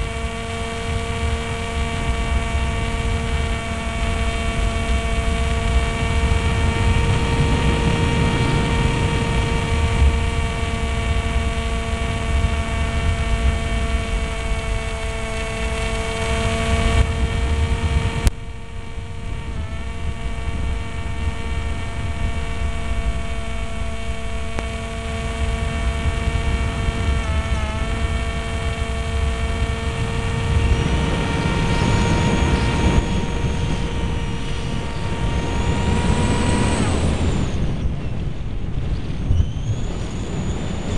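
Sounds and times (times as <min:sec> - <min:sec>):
electric motor and propeller whining: 0:00.0 - 0:40.9
wind buffeting microphone: 0:00.0 - 0:40.9
click: 0:24.5 - 0:24.7.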